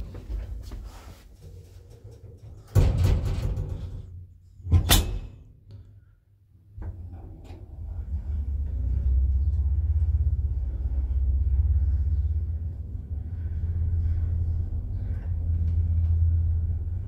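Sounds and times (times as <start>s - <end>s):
lift door shutting with a bang: 4.7s - 5.5s
lift motor rumbling: 6.7s - 17.0s.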